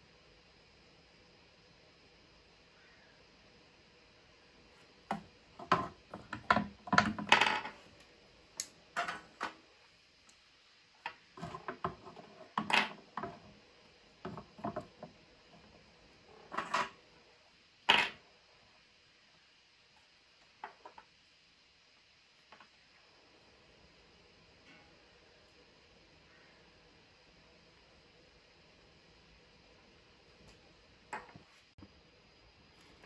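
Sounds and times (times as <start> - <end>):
tools clicking and tapping on workbench: 5.1 - 8.0, 8.6 - 9.6.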